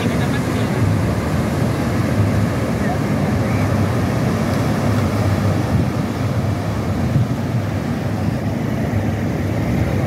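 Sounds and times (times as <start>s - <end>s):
ocean surf breaking: 0.0s - 10.0s
wind buffeting microphone: 0.0s - 10.0s.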